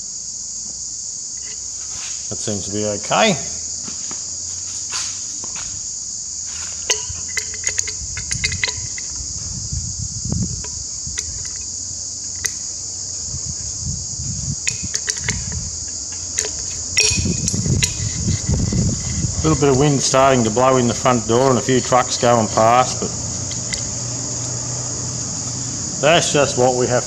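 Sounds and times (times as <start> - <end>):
insect drone: 0.0 - 27.0
wind rumble: 4.9 - 27.0
spanner clicking on nuts: 6.8 - 9.1, 14.6 - 15.6, 16.2 - 18.8, 21.4 - 23.9
passing trucks: 15.2 - 27.0.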